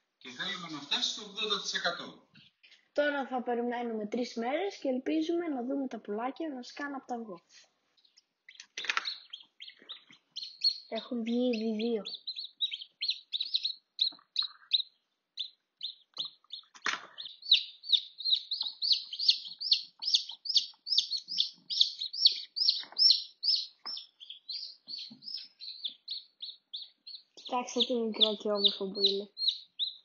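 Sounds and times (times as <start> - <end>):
chicks peeping: 7.9 - 30.0.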